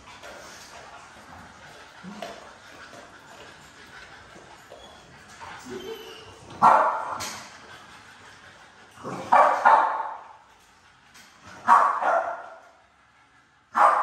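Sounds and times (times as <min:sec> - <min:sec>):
dogs barking: 0:06.6 - 0:07.4, 0:09.0 - 0:10.4, 0:11.6 - 0:12.6, 0:13.7 - 0:14.0.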